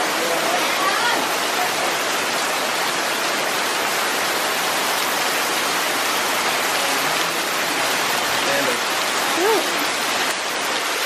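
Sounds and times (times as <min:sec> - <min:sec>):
heavy rain pouring: 0:00.0 - 0:11.0.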